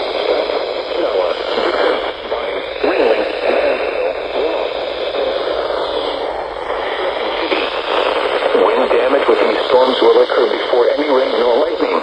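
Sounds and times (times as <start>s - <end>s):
faint radio voice: 0.0s - 12.0s
radio static hiss: 0.0s - 12.0s.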